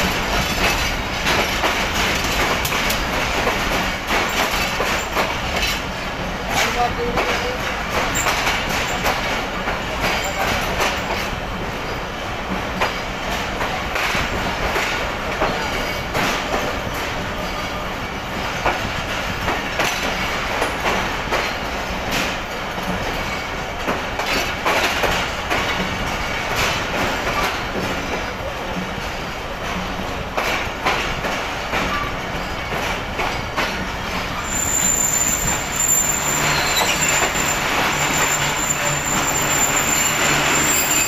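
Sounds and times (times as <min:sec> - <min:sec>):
train rumble: 0:00.0 - 0:41.0
train wheels clattering over joints: 0:00.0 - 0:41.0.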